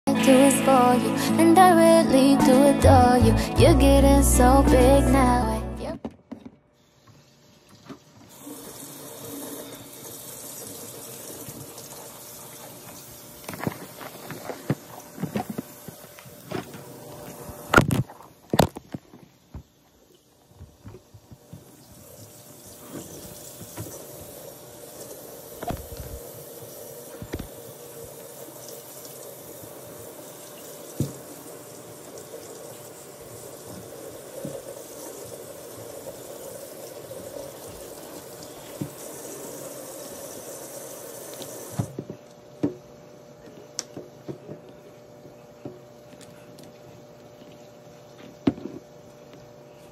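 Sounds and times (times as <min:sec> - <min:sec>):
faucet running into steel sink: 0:07.1 - 0:13.3, 0:21.8 - 0:41.9.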